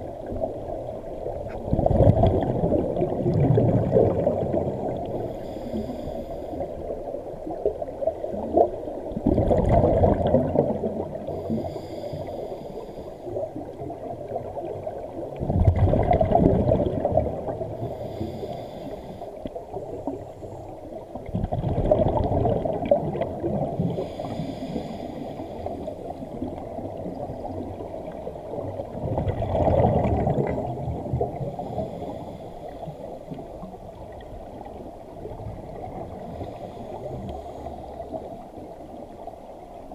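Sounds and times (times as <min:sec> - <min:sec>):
scuba regulator exhaled bubbles: 0:01.4 - 0:06.7, 0:07.6 - 0:12.3, 0:13.8 - 0:18.8, 0:21.2 - 0:32.5
regulator inhalation hiss: 0:11.4 - 0:13.3, 0:17.9 - 0:19.4, 0:24.0 - 0:25.9.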